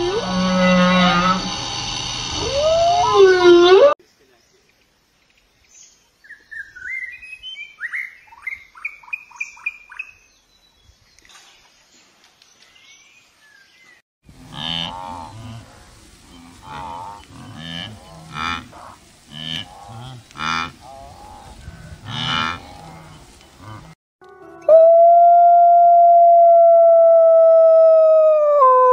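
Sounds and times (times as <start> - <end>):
bird singing whistled notes: 5.6 - 11.3
wildebeest calling: 14.5 - 23.9.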